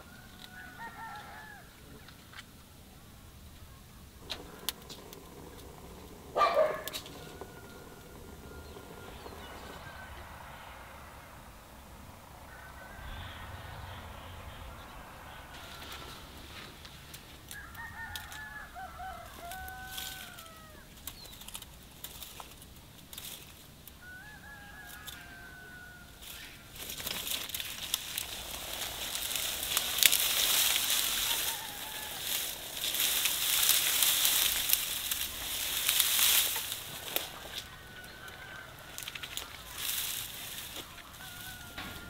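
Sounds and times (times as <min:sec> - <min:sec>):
rooster crowing: 0:00.0 - 0:02.0, 0:04.3 - 0:16.8, 0:17.4 - 0:20.9, 0:24.0 - 0:26.8, 0:27.6 - 0:42.0
dry branches crackling and snapping: 0:00.0 - 0:02.5, 0:04.1 - 0:11.1, 0:15.0 - 0:42.0.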